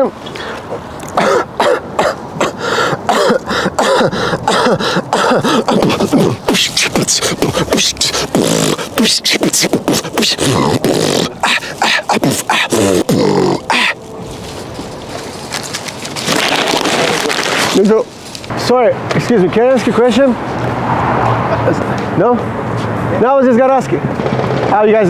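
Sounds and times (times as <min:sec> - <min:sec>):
man beatboxing: 0:02.0 - 0:14.0.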